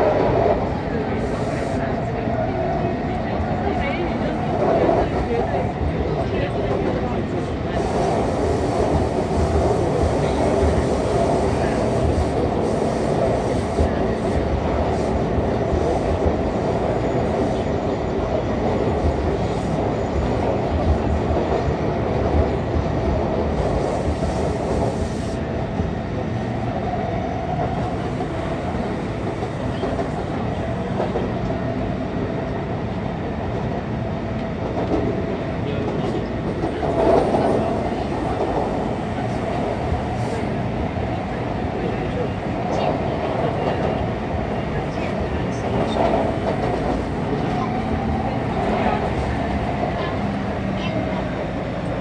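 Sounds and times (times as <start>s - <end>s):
train wheels rumbling on rail: 0.0s - 52.0s.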